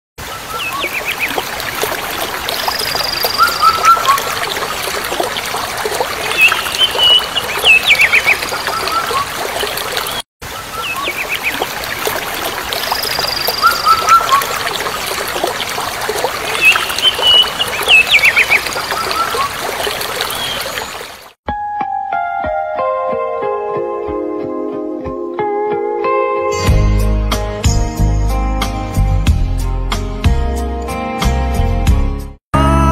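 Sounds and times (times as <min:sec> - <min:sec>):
flowing splashing water: 0:00.2 - 0:21.4
small birds chirping: 0:00.4 - 0:21.3.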